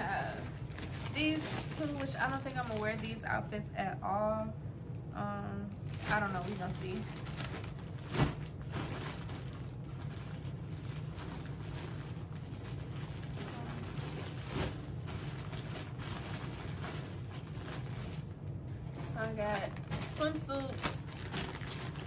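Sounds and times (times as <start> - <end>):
clothes and plastic bags rustling: 0.0 - 3.5, 5.7 - 22.0.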